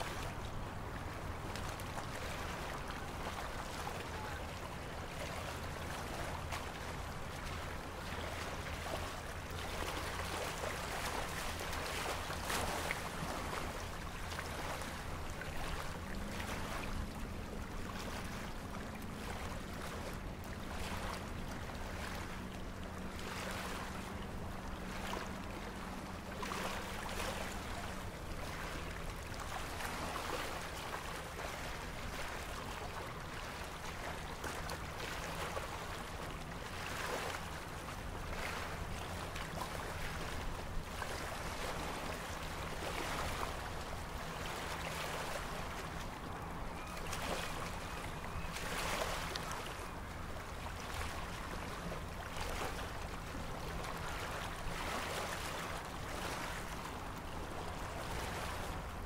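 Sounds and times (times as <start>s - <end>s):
low steady hum: 0.0s - 59.0s
small waves lapping: 0.0s - 59.0s.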